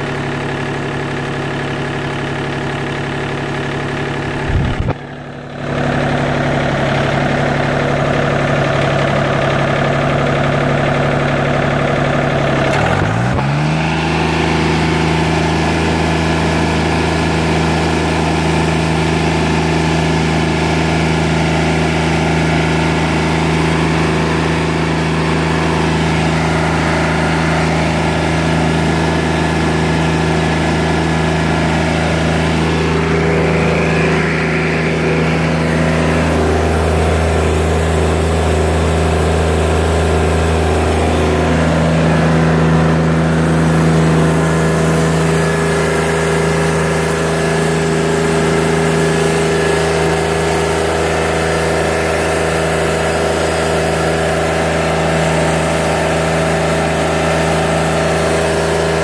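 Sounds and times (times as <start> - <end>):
sawmill engine running under load: 0.0 - 59.0.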